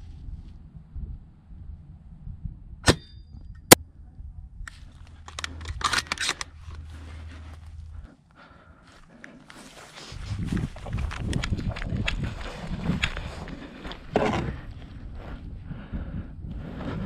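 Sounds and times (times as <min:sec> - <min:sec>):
rustling and shuffling movement: 0:04.7 - 0:08.1, 0:08.9 - 0:15.4.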